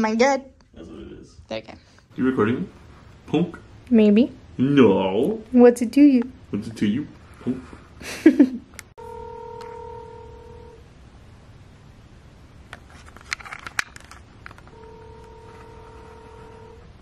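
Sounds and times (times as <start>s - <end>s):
telephone ringback tone: 9.0s - 10.8s, 14.7s - 16.9s.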